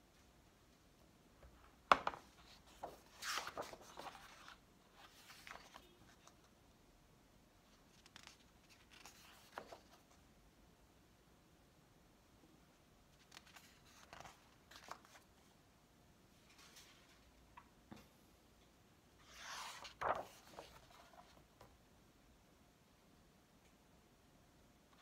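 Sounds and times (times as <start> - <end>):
book pages turning: 1.9 - 6.4, 7.9 - 10.1, 13.2 - 15.3, 19.2 - 21.4
paper rustling and sliding: 2.0 - 6.4, 19.2 - 21.4.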